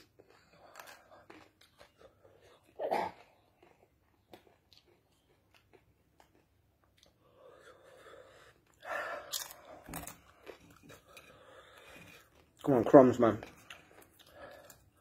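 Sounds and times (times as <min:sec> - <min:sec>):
person chewing corn chips: 0:00.0 - 0:15.0
person breathing: 0:07.1 - 0:12.3.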